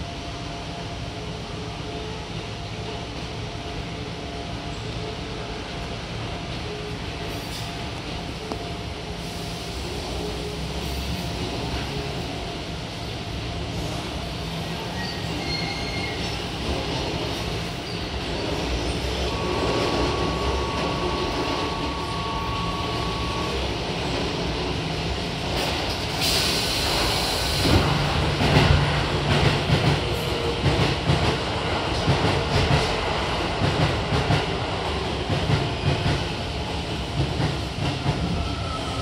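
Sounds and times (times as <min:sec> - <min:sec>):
train rumble: 0:00.0 - 0:39.0
air hiss of doors closing: 0:26.1 - 0:27.9.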